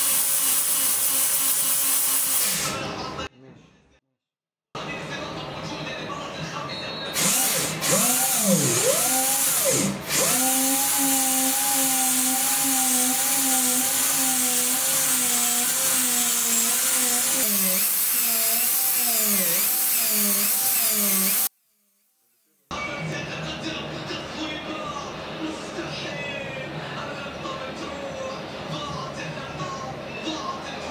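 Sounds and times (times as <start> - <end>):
dental drill whining: 0.0 - 2.7, 7.2 - 22.4.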